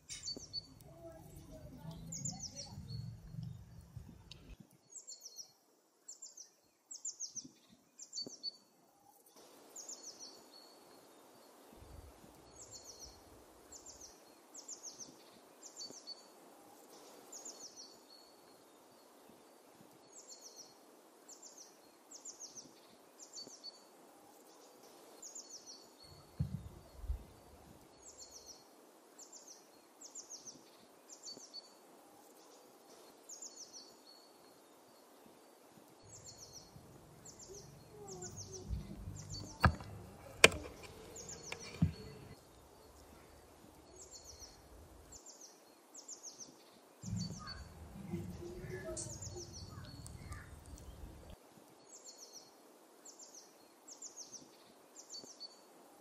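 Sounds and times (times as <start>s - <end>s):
songbird chirping: 0.0s - 55.7s
faint outdoor hiss: 0.0s - 56.0s
low thumps: 36.1s - 42.4s, 47.0s - 51.4s.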